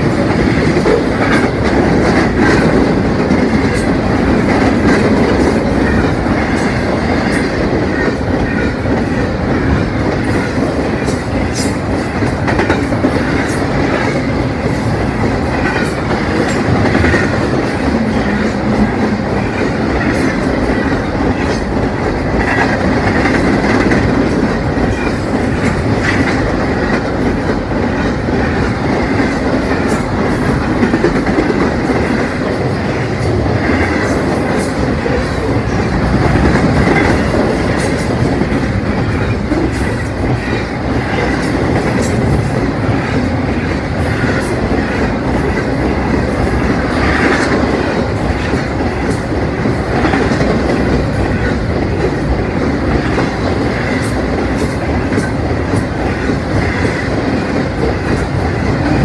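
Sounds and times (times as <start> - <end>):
freight train passing: 0.0 - 59.0.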